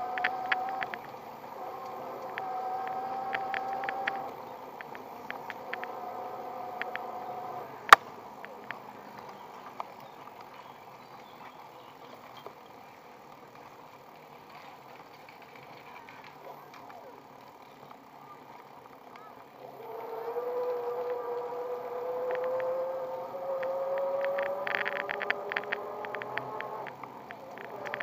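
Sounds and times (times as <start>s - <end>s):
electric motor whining: 0.0s - 8.0s, 19.6s - 28.0s
bike clicks and rattles: 0.0s - 28.0s.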